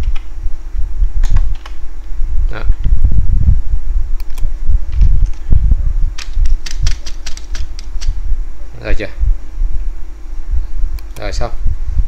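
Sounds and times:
steady low hum: 0.0 - 12.0
keyboard keystrokes: 6.2 - 8.2.

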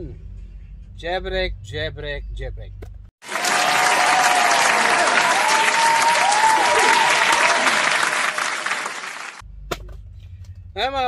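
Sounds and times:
crowd applause: 3.2 - 9.4.

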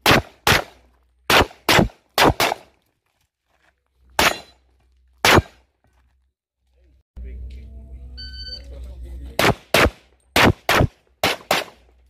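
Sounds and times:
pistol shots: 0.0 - 2.7, 4.2 - 4.6, 5.2 - 5.6, 9.4 - 11.9.

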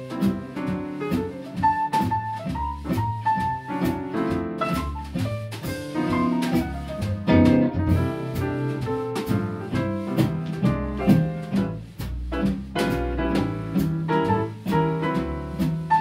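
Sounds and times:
piano: 0.0 - 16.0
swing jazz band playing: 0.0 - 16.0.

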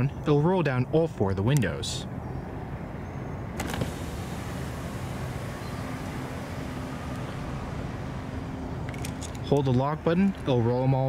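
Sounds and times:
outdoor background noise: 0.0 - 11.0
car windows motor hum: 3.6 - 9.8.

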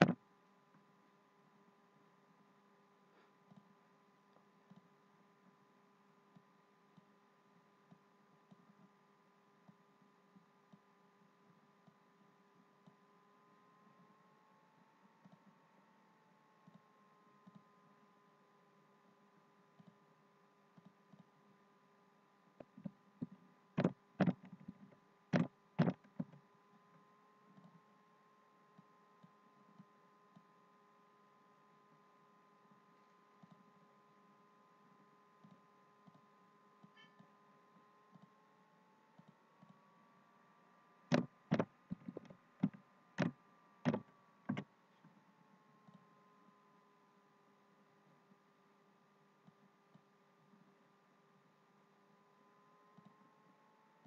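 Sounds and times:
keyboard key taps and mouse clicks: 0.0 - 0.2, 22.6 - 26.4, 41.1 - 44.7
faint steady hum: 0.0 - 54.0.

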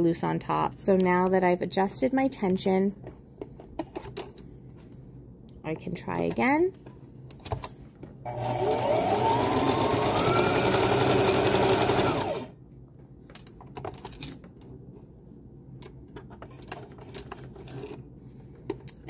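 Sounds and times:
sewing machine motor whine: 8.3 - 12.5.

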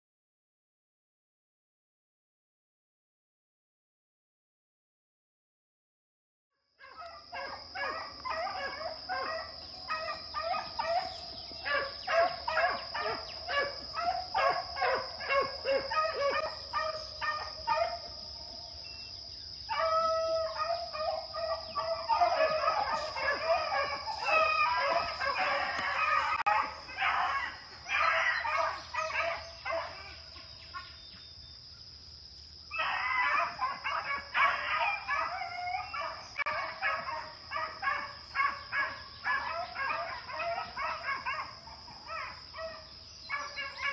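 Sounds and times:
beagles baying: 6.8 - 19.1, 19.7 - 31.0, 32.7 - 43.9.

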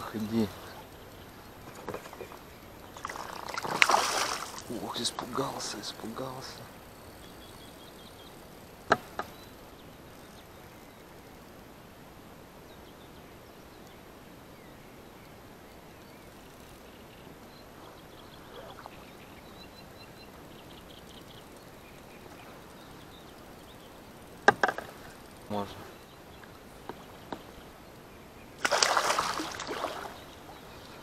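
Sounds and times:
small splash of fish: 3.0 - 4.7, 28.6 - 30.2
faint bird calls: 16.0 - 31.0
sharp knocks: 24.4 - 24.9.

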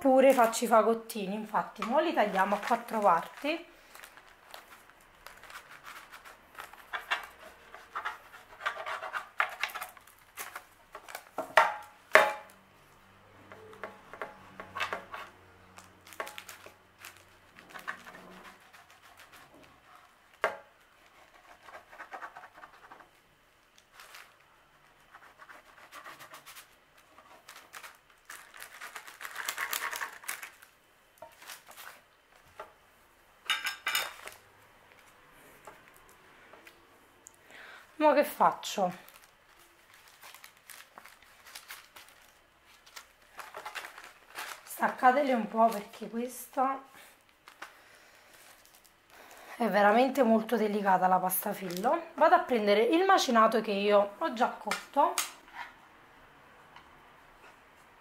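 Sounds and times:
paper and foil rustling: 1.5 - 11.4, 14.9 - 32.6, 38.4 - 50.3, 51.0 - 52.0
knife scraping pastry: 4.5 - 10.6, 16.1 - 20.2, 21.0 - 23.1, 25.0 - 30.5.

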